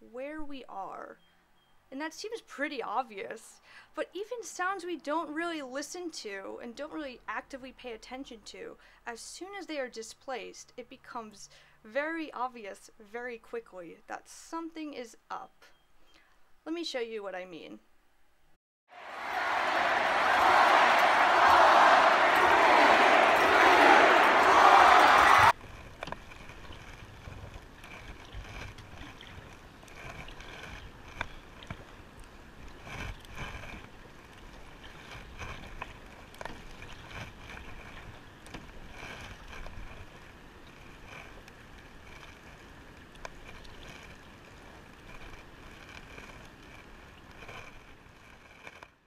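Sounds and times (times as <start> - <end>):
paddle splashing water: 25.6 - 47.7.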